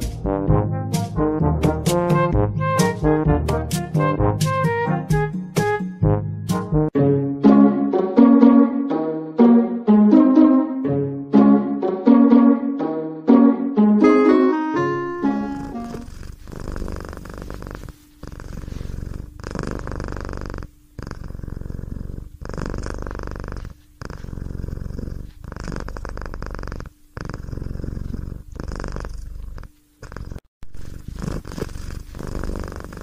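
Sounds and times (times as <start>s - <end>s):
cat purring: 15.2s - 33.0s.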